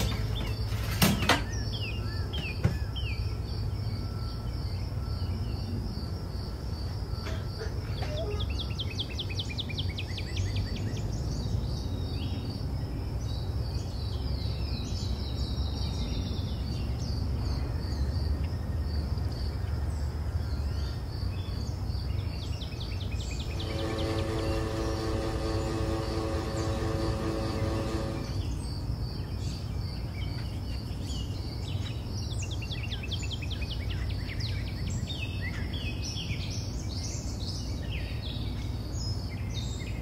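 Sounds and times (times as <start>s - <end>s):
birds singing: 0.0s - 40.0s
crickets chirping: 0.0s - 40.0s
low hum: 23.2s - 29.2s
music: 23.6s - 28.4s.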